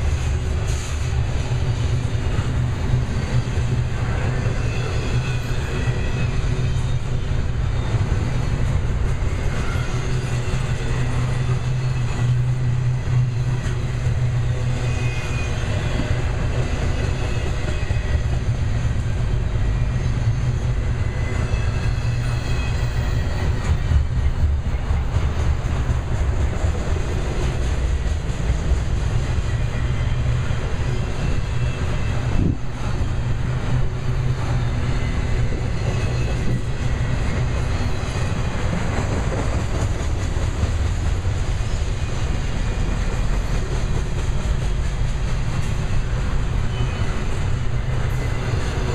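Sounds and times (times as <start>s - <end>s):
steel wheels rumbling on rails: 0.0s - 48.9s.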